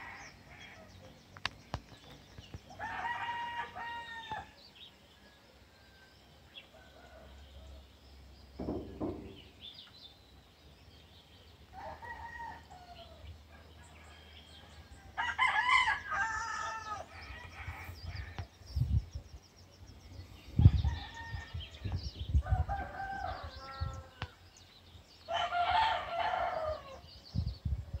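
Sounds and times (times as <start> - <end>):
roosters crowing: 2.7 - 4.6, 11.7 - 18.6, 20.4 - 24.5, 25.2 - 27.2
thumps on microphone: 8.6 - 9.5.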